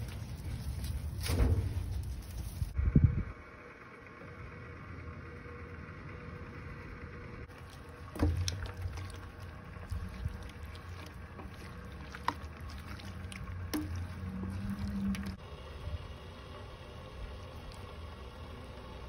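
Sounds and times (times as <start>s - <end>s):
steady low rumble: 0.0s - 19.0s
spatula stirring in a pan: 7.5s - 15.4s.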